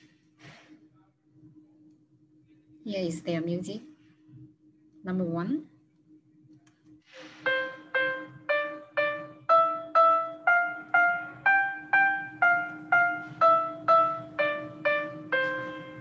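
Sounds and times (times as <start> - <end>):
low steady hum: 0.0 - 16.0
piano melody: 7.4 - 16.0.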